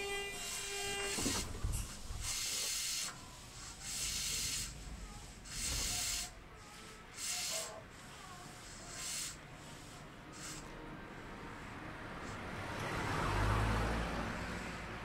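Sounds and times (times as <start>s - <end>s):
train stopping clunk: 0.0s - 6.5s
compressed air hissing bursts: 0.0s - 10.8s.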